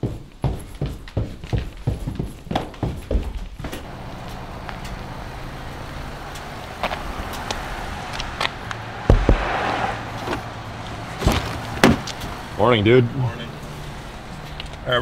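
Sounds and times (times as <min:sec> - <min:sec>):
footsteps: 0:00.0 - 0:05.2, 0:06.2 - 0:12.5, 0:13.6 - 0:14.8
car engine idling: 0:03.8 - 0:15.0
car door heavy thumps: 0:11.2 - 0:12.2.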